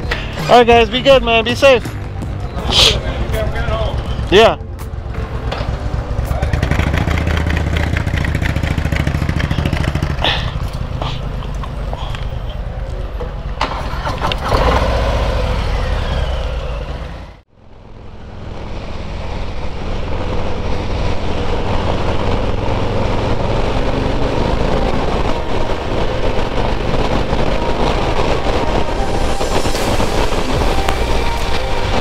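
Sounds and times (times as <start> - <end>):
road and wind noise: 0.0 - 32.0
motorcycle engine running: 1.8 - 12.2.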